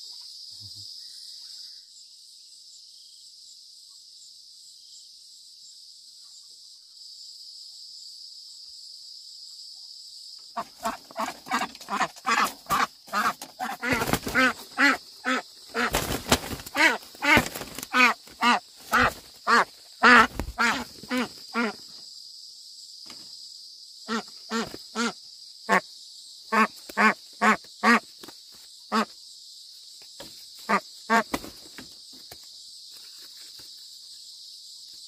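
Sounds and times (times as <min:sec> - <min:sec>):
animal calling: 0:10.6 - 0:21.8.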